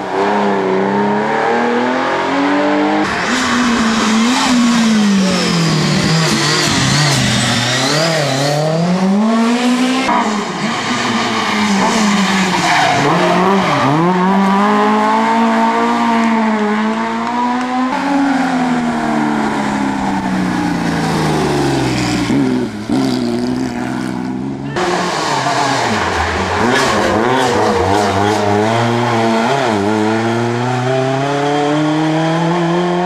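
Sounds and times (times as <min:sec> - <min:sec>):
rally car engines: 0:00.0 - 0:33.0
tires squealing: 0:03.0 - 0:08.8, 0:09.8 - 0:15.9, 0:17.7 - 0:30.3.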